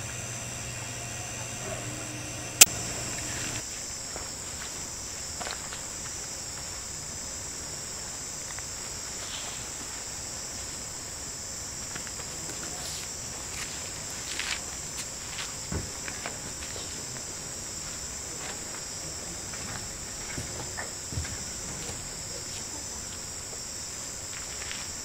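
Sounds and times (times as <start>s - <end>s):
low hum: 0.0s - 3.6s
insects chirring: 0.0s - 25.0s.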